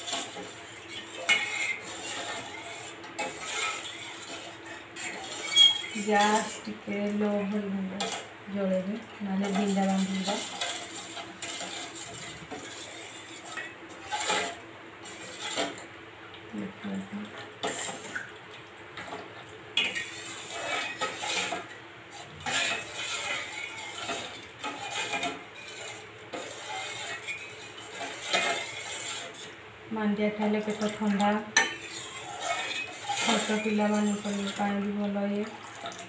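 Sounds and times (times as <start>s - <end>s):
spoon scraping metal pot: 0.0s - 6.6s, 8.0s - 8.3s, 9.4s - 15.8s, 17.6s - 18.1s, 19.8s - 29.6s, 30.6s - 34.8s.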